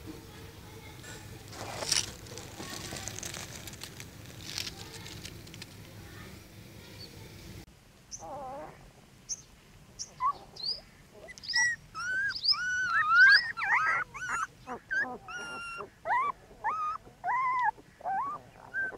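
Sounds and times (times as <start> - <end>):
puppies whimpering and squealing: 11.2 - 18.9.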